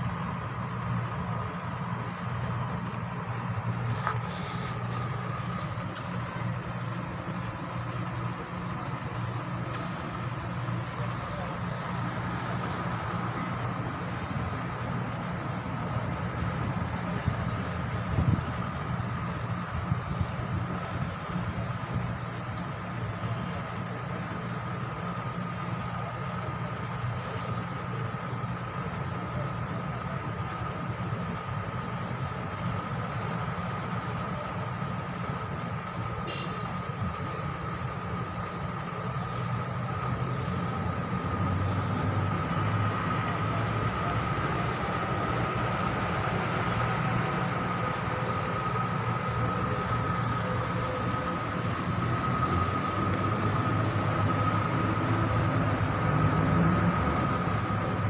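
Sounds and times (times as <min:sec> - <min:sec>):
low mechanical hum: 0:00.0 - 0:58.0
short hiss: 0:03.9 - 0:06.1, 0:36.2 - 0:36.6.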